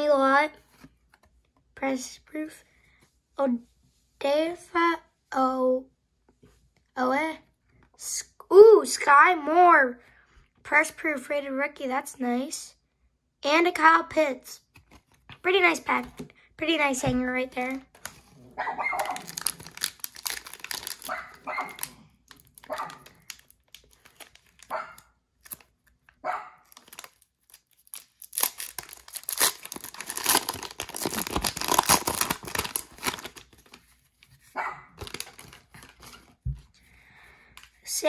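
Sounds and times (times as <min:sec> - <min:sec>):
plastic wrapper tearing and crinkling: 0:17.6 - 0:24.8, 0:25.4 - 0:26.1, 0:26.7 - 0:34.0, 0:35.0 - 0:36.4.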